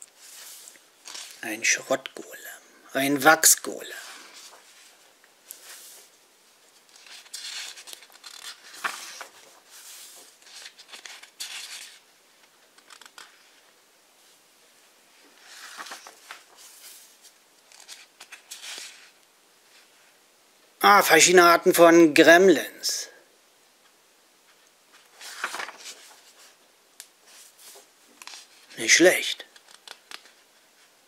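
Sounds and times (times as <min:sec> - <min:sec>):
book pages turning: 0:00.0 - 0:01.4, 0:04.0 - 0:06.1, 0:06.7 - 0:13.7, 0:15.2 - 0:19.2, 0:24.5 - 0:26.6, 0:27.2 - 0:28.7, 0:29.4 - 0:31.0.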